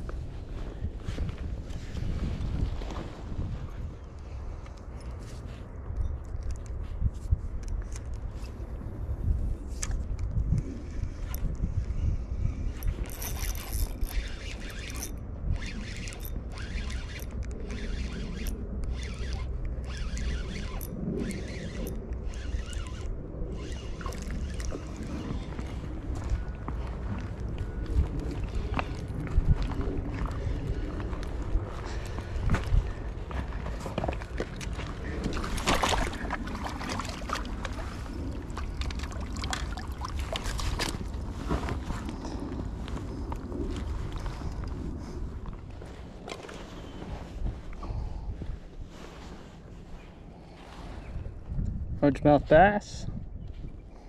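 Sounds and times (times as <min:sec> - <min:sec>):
wind rumble on microphone: 0:00.0 - 0:54.0
spinning reel gear whirring: 0:12.6 - 0:26.0.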